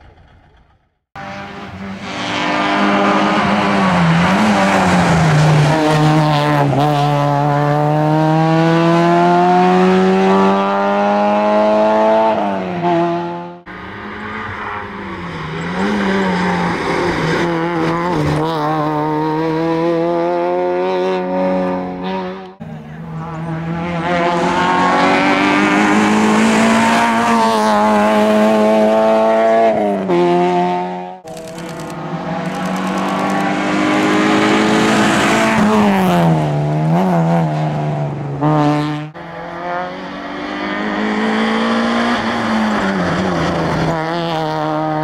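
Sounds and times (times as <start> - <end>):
car engine revving hard: 1.2 - 13.6, 23.3 - 45.0.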